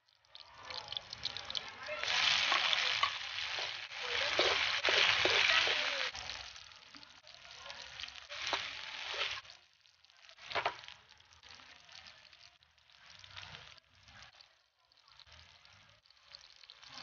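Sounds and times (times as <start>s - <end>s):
vegetables sizzling in oil: 0.0s - 17.0s
metal spatula stirring: 2.0s - 6.4s.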